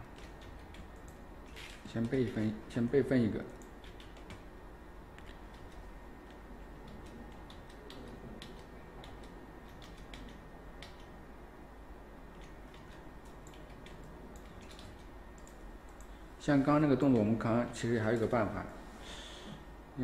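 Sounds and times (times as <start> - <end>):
steady low hum: 0.0 - 20.0
mouse and keyboard clicks: 5.2 - 11.1, 12.3 - 16.1.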